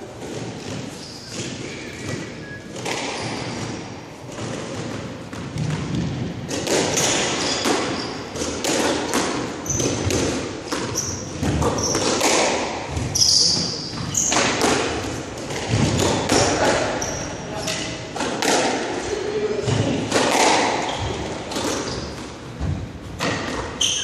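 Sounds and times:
squash ball hits: 0.1s - 19.0s, 19.6s - 24.0s
sneaker squeaks: 0.3s - 4.5s, 6.8s - 8.6s, 9.4s - 14.6s, 16.0s - 18.0s, 20.7s - 22.5s, 23.2s - 24.0s.

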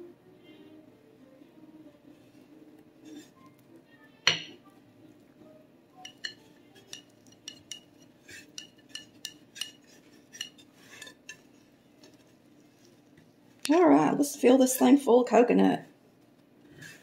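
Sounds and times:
metal spatula clinking on glass: 6.0s - 11.4s.

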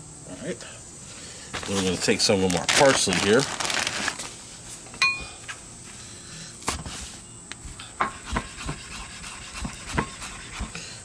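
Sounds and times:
knife chopping on wooden board: 8.0s - 8.8s, 9.6s - 10.7s.

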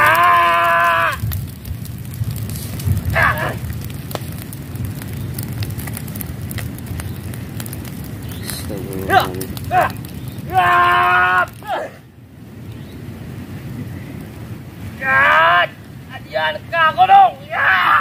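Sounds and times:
grass fire crackling: 0.0s - 18.0s
person shouting: 3.1s - 3.7s, 8.7s - 12.0s, 15.0s - 15.8s, 17.0s - 18.0s.

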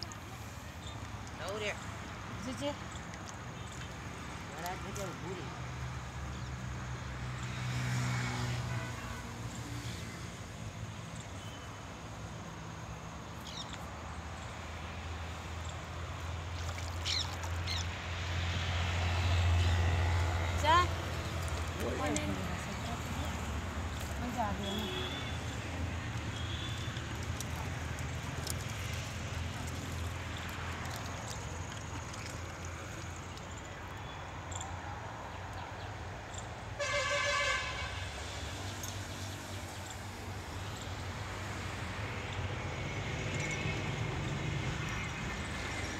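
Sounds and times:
outdoor noise: 0.0s - 45.9s
vehicle horn honk: 36.8s - 38.0s.

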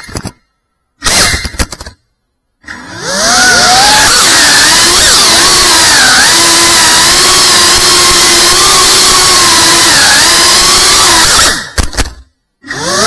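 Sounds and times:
drone motors whining: 2.6s - 11.8s, 12.6s - 13.0s.

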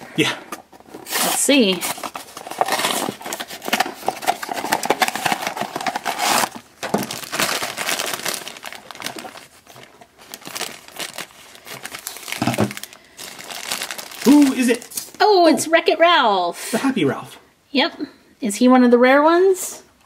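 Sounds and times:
foil bag crinkling: 1.0s - 15.2s.

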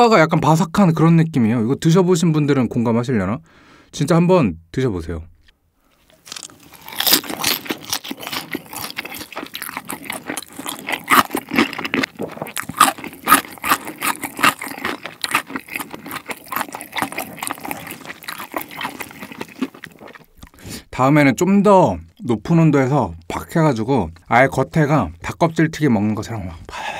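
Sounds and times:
crunchy chewing: 6.0s - 20.6s.

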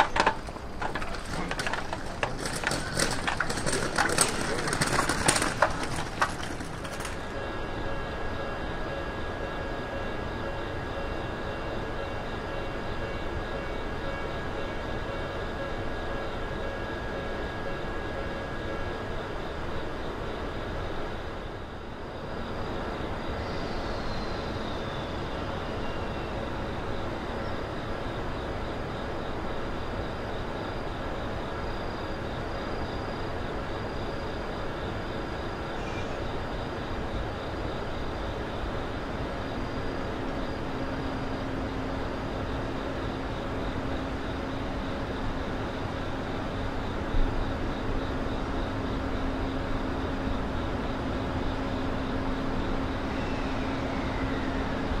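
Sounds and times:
level-crossing alarm ringing: 0.0s - 21.1s
locomotive rumble: 0.0s - 55.0s.

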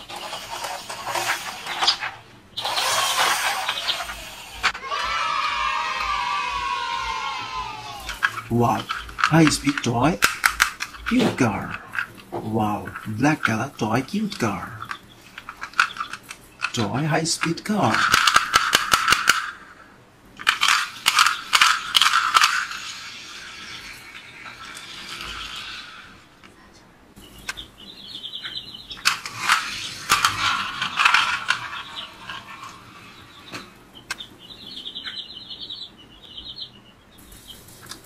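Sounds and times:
toy car motor whirr: 0.0s - 4.8s, 20.4s - 26.3s, 29.0s - 33.5s
toy car ratcheting clicks: 2.6s - 4.8s, 17.9s - 19.5s, 20.4s - 25.9s.

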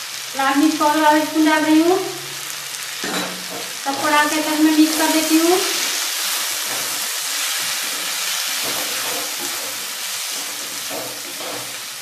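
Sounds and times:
vegetables sizzling in oil: 0.0s - 12.0s
wooden spatula scraping: 4.9s - 11.9s.

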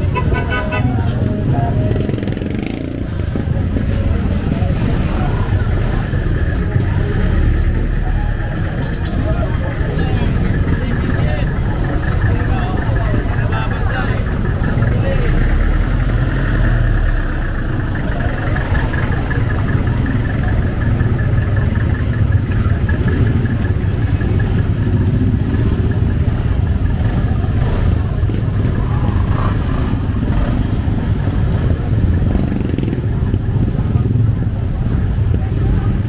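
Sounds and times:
vehicles passing close by: 0.0s - 36.0s
clatter: 16.7s - 30.7s.

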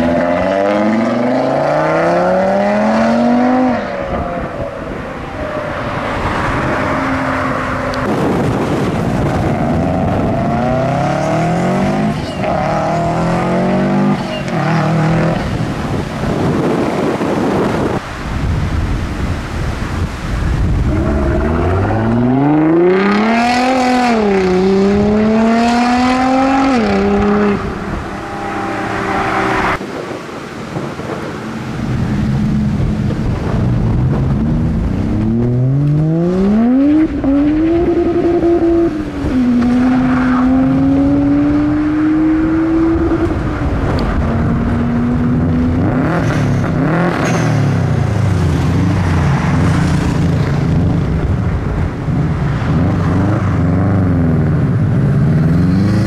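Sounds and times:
cars accelerating and revving: 0.0s - 18.2s, 19.4s - 56.0s.

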